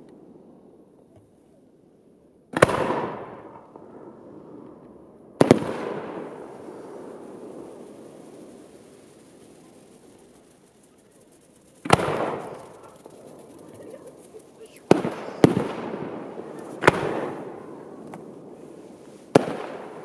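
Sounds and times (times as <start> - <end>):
long echo of booms: 2.6 - 9.4, 14.8 - 20.0
firework shells bursting: 5.4 - 20.0.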